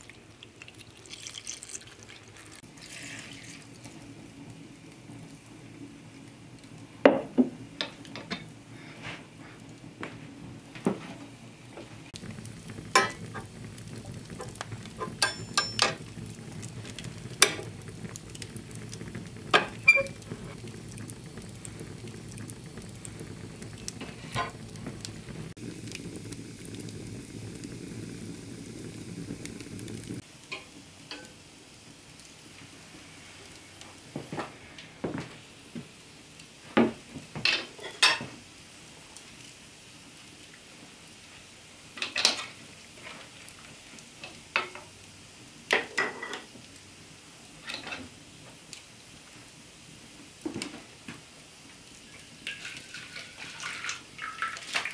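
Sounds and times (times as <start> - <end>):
fire crackling: 0.0 - 54.9
metal pot clanking: 12.9 - 13.5, 14.4 - 16.1
utensils clinking on dishes: 15.0 - 16.0.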